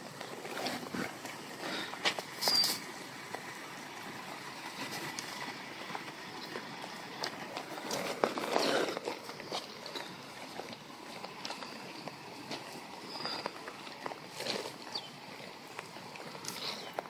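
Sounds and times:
footsteps on wet pavement: 0.0 - 17.0
rain: 0.0 - 17.0
running floodwater: 0.0 - 17.0
short high squeak: 2.4 - 2.8.

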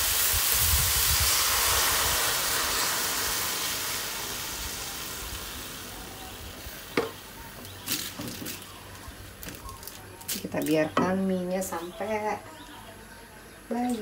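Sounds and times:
water hissing in a hot wok: 0.0 - 8.7.

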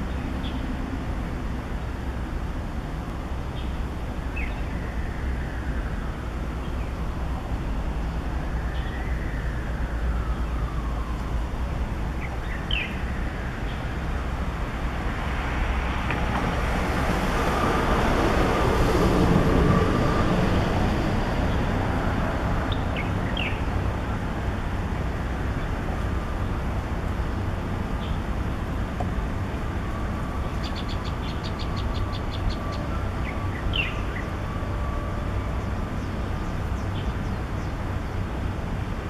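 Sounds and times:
road traffic rumble: 0.0 - 39.0
small bird chirping: 30.6 - 34.2.

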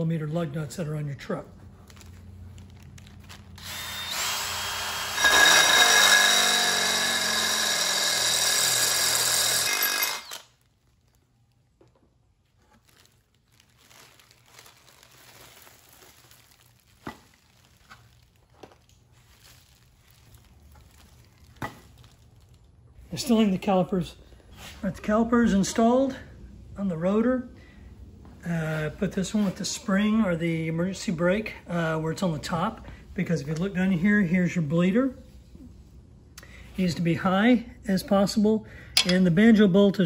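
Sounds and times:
drill cutting metal whine: 3.6 - 10.4.

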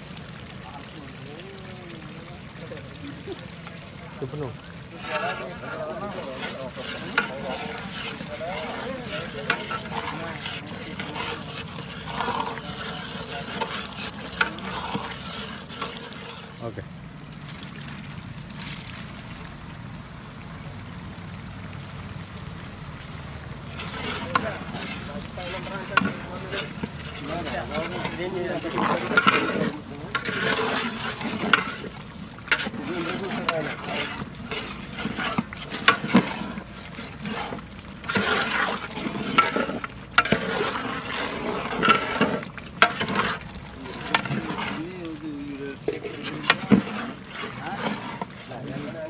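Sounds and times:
ladle stirring curry sloshing: 0.0 - 20.6, 21.2 - 49.0.

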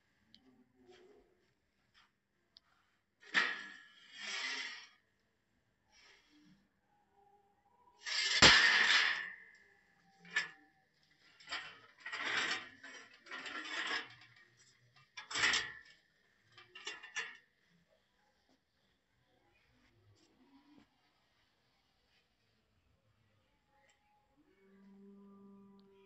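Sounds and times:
metal frame clanking and scraping: 3.2 - 5.0, 8.0 - 9.6, 10.2 - 10.6, 11.2 - 17.4.

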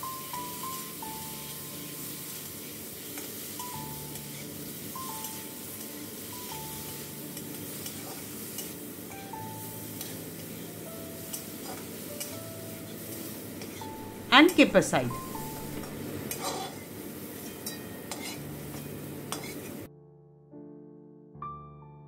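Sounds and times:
prawns sizzling in hot oil: 0.0 - 19.9
metal spatula scraping a pan: 4.1 - 4.6, 6.9 - 8.8, 10.0 - 14.0, 15.5 - 19.9
soft melody of single notes: 13.9 - 16.1.

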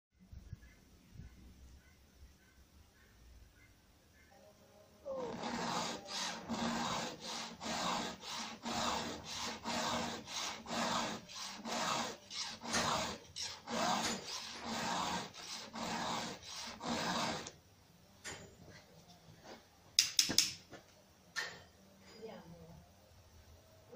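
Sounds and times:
hand file stroking chainsaw chain: 5.2 - 17.5.

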